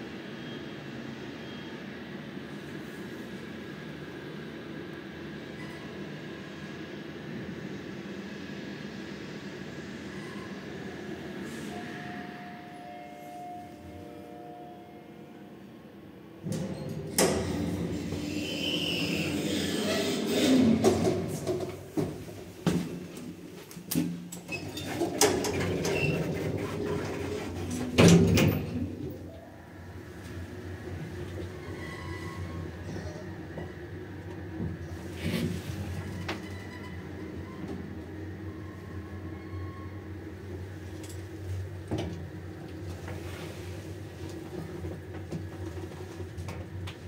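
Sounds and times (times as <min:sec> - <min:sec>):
elevator running hum: 0:00.0 - 0:47.0
lift doors sliding: 0:16.4 - 0:29.3, 0:30.0 - 0:47.0.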